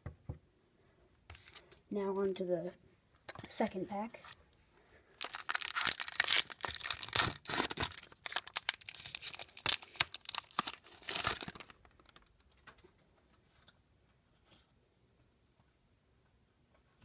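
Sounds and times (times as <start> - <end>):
foil wrapper tearing and crinkling: 5.2 - 12.2.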